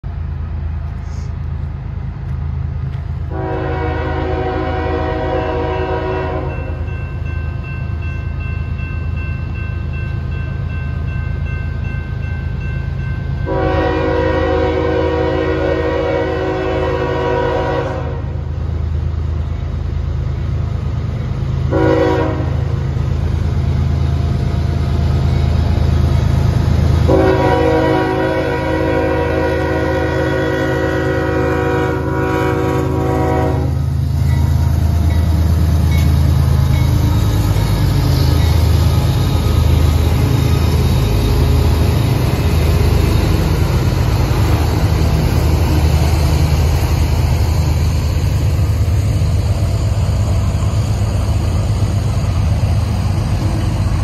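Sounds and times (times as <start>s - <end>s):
diesel locomotive rumble: 0.0s - 54.0s
locomotive air horn blasts: 3.3s - 6.8s, 13.4s - 18.5s, 21.7s - 22.7s, 27.0s - 33.9s.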